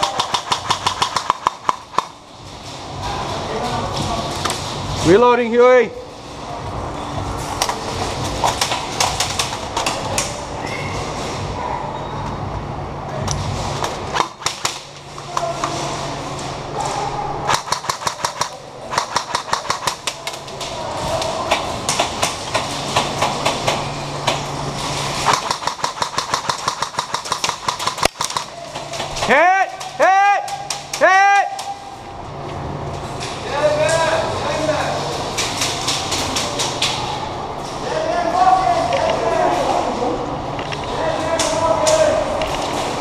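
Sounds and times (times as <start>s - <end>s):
airsoft rifles firing: 0.0s - 2.2s, 14.1s - 14.9s, 17.5s - 20.4s, 25.2s - 29.3s.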